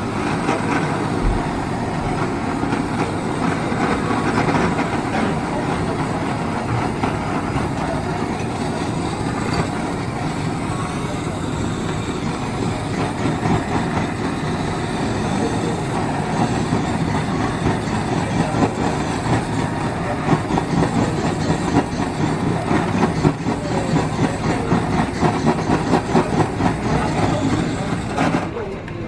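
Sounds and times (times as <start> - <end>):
gas blowtorch roaring: 0.0 - 29.0.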